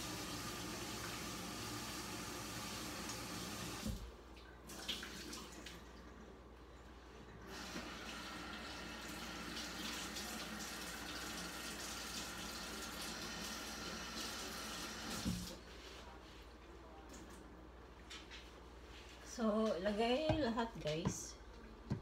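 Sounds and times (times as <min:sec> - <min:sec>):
tap water running into sink: 0:00.0 - 0:04.1, 0:07.5 - 0:15.6.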